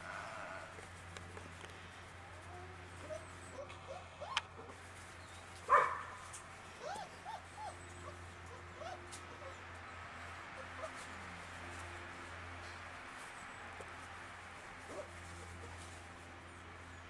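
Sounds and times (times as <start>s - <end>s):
puppies whining: 3.0s - 5.5s, 6.7s - 11.0s.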